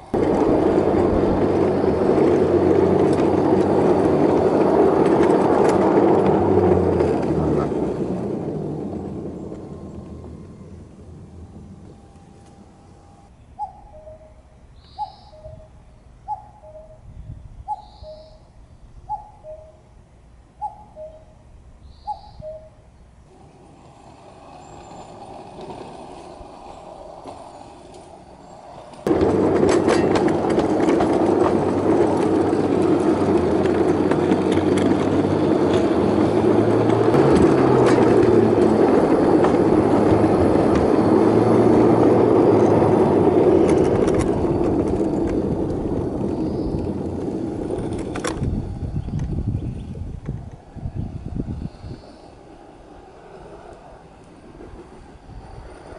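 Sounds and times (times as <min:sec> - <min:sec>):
small train wheels rumbling on rail: 0:00.0 - 0:13.6, 0:21.4 - 0:55.9
bird cooing call: 0:13.6 - 0:15.7, 0:16.3 - 0:17.0, 0:17.7 - 0:18.5, 0:19.1 - 0:19.8, 0:20.6 - 0:21.3, 0:22.0 - 0:22.8.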